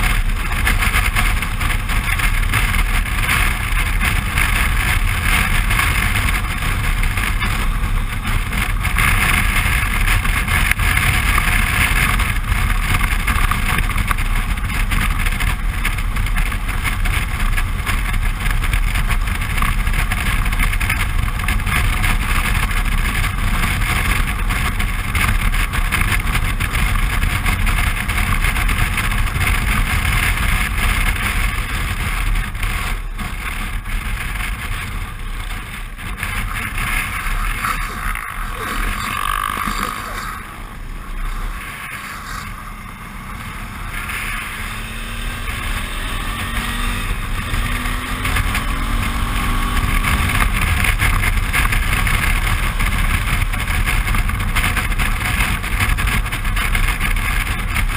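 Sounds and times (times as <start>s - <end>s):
motorcycle engine running: 0.0s - 57.9s
wind rushing over microphone: 0.0s - 57.9s.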